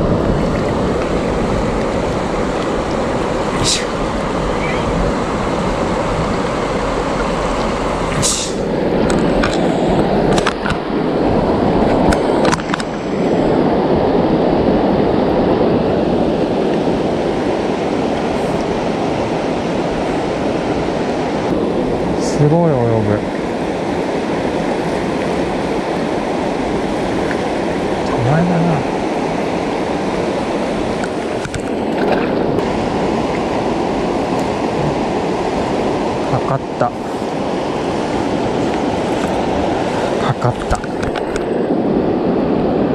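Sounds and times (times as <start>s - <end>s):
river water rushing: 0.0s - 42.9s.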